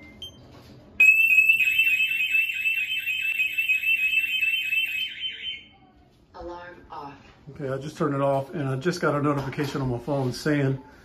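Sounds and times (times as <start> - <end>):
alarm siren warbling: 1.0 - 5.7.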